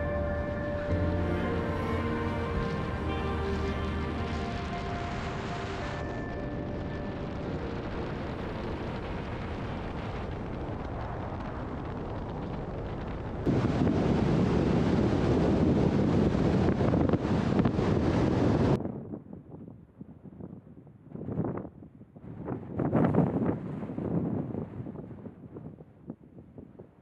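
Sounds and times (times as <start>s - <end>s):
road noise: 0.0s - 10.7s
wind buffeting microphone: 0.0s - 27.0s.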